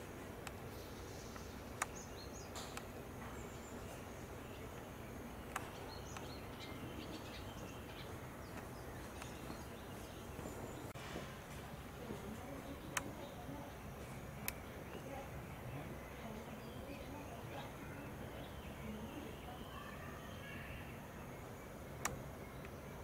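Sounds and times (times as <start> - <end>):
low outdoor background noise: 0.0 - 23.0
faint bird chirps: 0.6 - 11.0, 12.0 - 23.0
sharp clicks: 1.3 - 2.9, 5.4 - 6.4, 12.8 - 13.3, 22.0 - 22.8.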